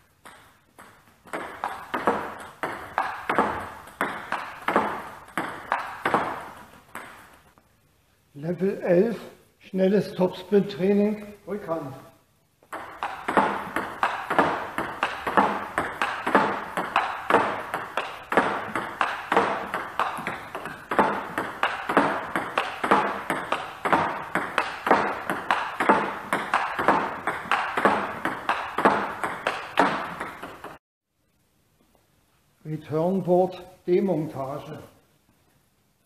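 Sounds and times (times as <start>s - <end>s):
table tennis ball clicking: 0.2s - 7.2s, 12.6s - 30.8s.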